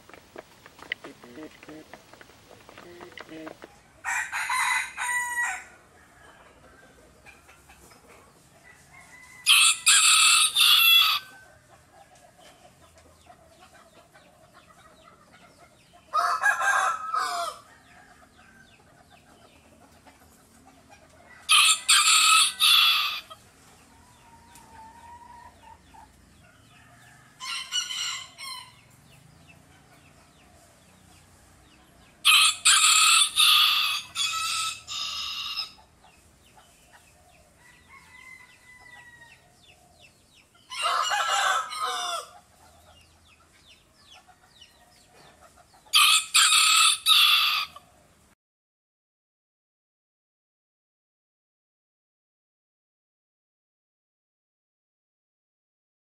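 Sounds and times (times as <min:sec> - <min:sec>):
rooster crowing: 0:02.7 - 0:06.7, 0:08.7 - 0:11.5, 0:16.1 - 0:18.6, 0:21.4 - 0:23.3, 0:32.2 - 0:35.8, 0:37.6 - 0:39.5, 0:40.7 - 0:42.4, 0:45.9 - 0:47.8.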